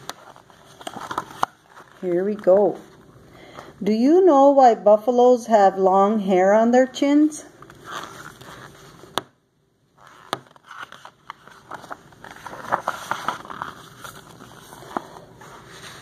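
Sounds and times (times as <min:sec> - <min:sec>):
paper rustling and crackling: 0:00.0 - 0:03.0, 0:10.0 - 0:16.0
page turning: 0:00.0 - 0:03.1, 0:07.6 - 0:09.2, 0:10.0 - 0:16.0.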